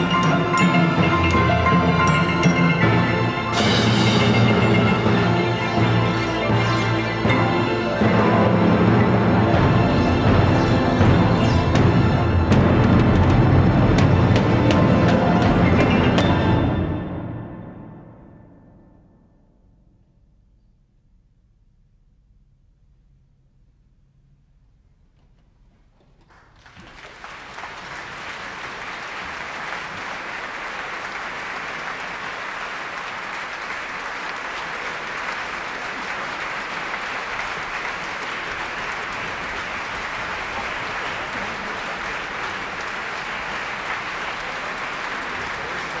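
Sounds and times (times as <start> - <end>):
audience applause: 26.2 - 46.0.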